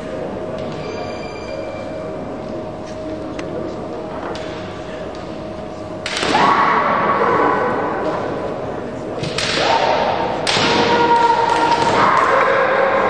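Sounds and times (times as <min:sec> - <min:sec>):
bamboo sword strikes: 0:09.2 - 0:12.4
women shouting: 0:10.7 - 0:13.0.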